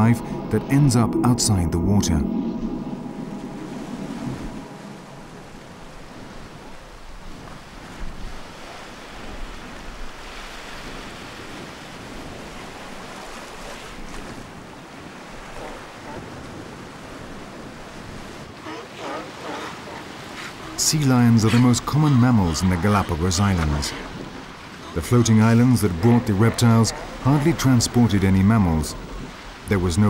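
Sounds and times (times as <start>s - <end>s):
waves washing onto beach: 0.0s - 30.0s
wind: 0.0s - 30.0s.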